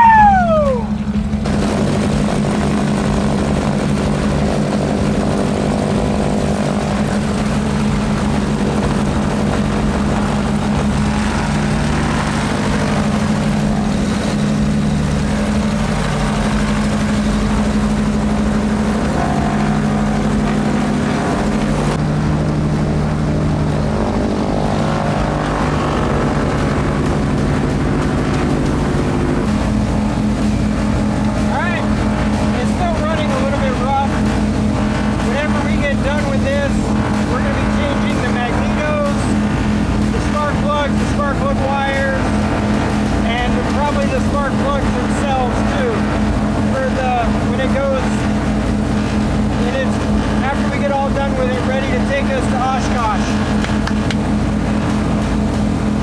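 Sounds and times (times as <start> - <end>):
aircraft engine and propeller running: 0.0 - 56.0
falling whine: 0.0 - 56.0.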